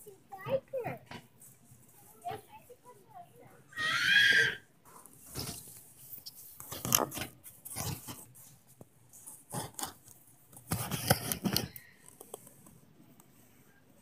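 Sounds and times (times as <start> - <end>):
camera rubbing against cardboard: 4.9 - 11.8.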